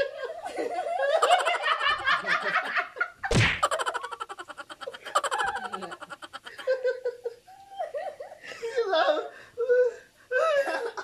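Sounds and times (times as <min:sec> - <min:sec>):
group of people laughing: 0:00.0 - 0:08.9, 0:10.3 - 0:11.0
loud thump: 0:03.3 - 0:03.8.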